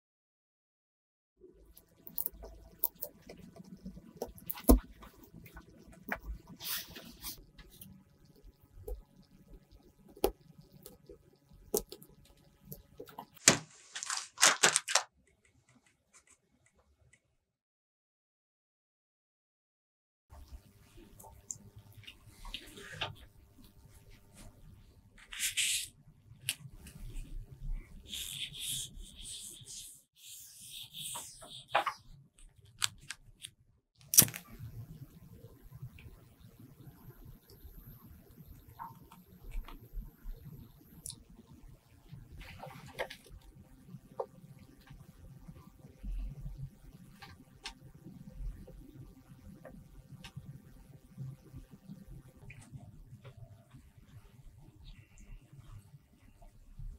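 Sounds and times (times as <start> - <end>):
crinkly rustling: 13.2 - 15.1
swab scratching paper: 25.2 - 25.9, 28.0 - 32.0.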